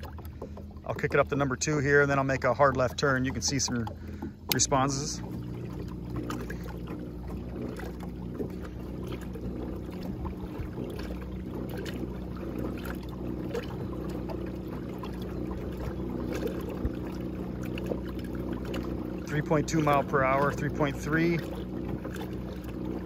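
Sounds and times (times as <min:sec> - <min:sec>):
electric trolling motor humming: 0:00.0 - 0:23.0
water washing along kayak hull: 0:00.0 - 0:23.0.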